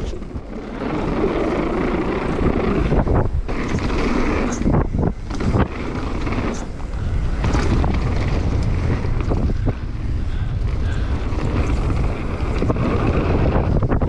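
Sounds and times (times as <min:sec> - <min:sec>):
bike knocks and rattles: 0:00.0 - 0:14.0
rumble of bike tyres: 0:00.0 - 0:14.0
wind buffeting microphone: 0:00.0 - 0:14.0.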